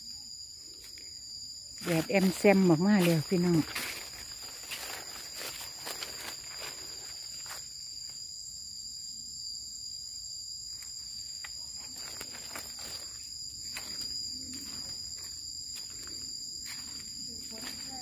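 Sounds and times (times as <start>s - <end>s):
high-pitched insect drone: 0.0s - 18.0s
footsteps on dry leaves: 1.8s - 7.7s, 11.8s - 18.0s.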